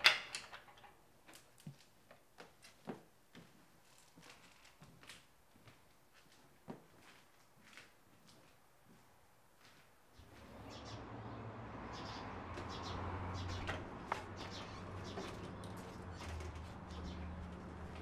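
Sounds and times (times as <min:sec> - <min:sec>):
small birds chirping: 0:10.1 - 0:18.0.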